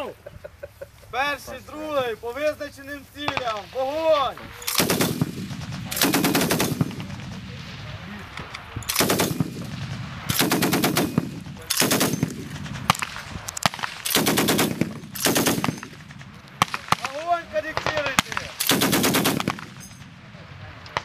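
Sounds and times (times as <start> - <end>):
single gunshots: 3.2 - 8.0, 8.9 - 19.9
machine gun bursts: 4.6 - 7.0, 8.9 - 9.5, 10.3 - 12.4, 14.0 - 16.0, 18.6 - 19.9.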